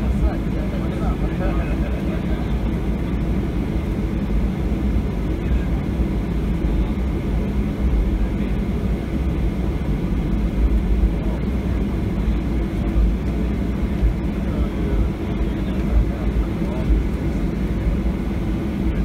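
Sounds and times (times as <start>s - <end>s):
airplane cabin rumble: 0.0s - 19.0s.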